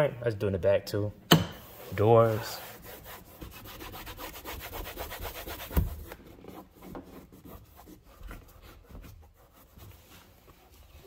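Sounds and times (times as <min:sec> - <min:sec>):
sharp knock: 0:01.3 - 0:01.7
cloth wiping door panel: 0:01.6 - 0:11.0.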